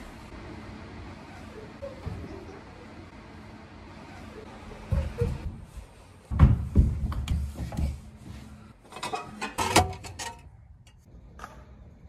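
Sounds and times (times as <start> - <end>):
heavy footsteps on wooden floor: 5.0 - 8.6.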